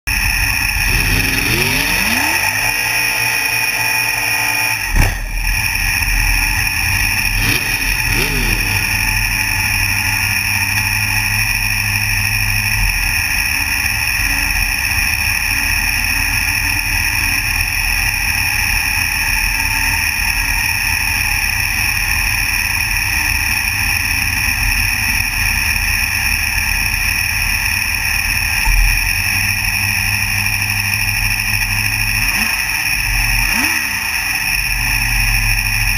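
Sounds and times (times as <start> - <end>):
engine idling with throttle blips: 0.0 - 35.9
sharp crack: 4.7 - 9.6.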